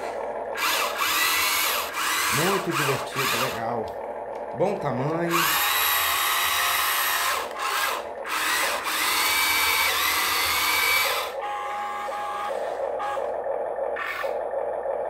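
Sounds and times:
small electric motors whirring: 0.0s - 3.8s, 5.3s - 13.4s, 14.0s - 14.4s.

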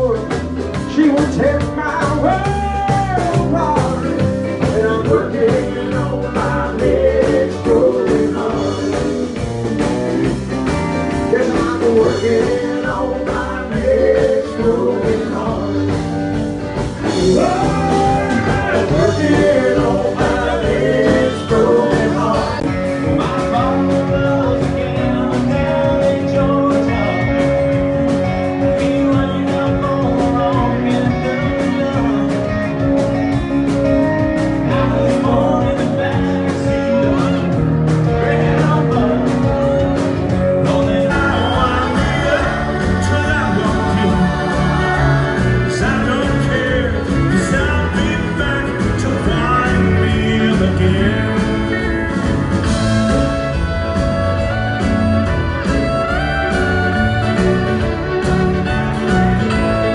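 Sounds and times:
drums: 0.0s - 59.9s
guitar: 0.0s - 59.9s
voices singing into microphones: 0.9s - 9.5s, 11.2s - 27.5s, 34.6s - 52.8s.

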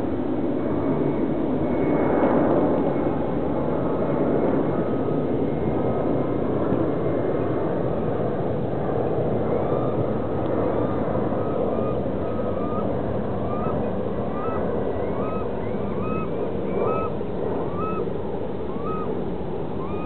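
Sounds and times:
waterbirds calling: 9.4s - 20.0s.

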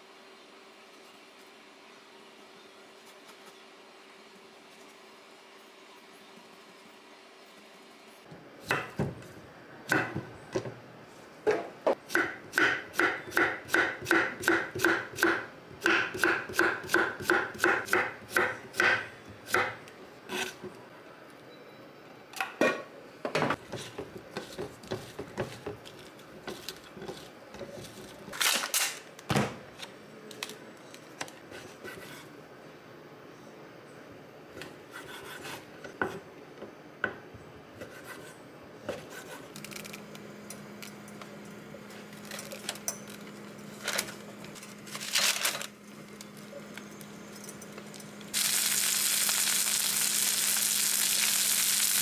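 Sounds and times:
knife chopping on wooden board: 11.5s - 19.8s.

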